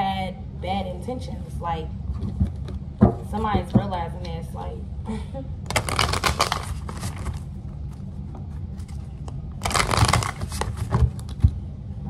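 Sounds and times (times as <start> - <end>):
cards shuffling: 5.7 - 8.0, 8.7 - 11.4.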